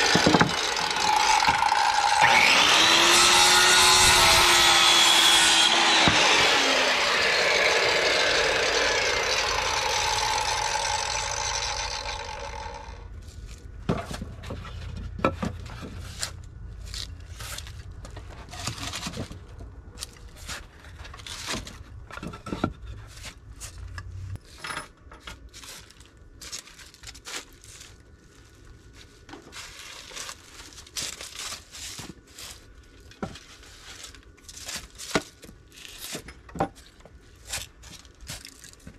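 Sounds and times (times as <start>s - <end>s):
wooden boards knocking and clattering: 0.0s - 1.7s, 13.8s - 16.0s
circular saw cutting wood: 0.0s - 13.1s.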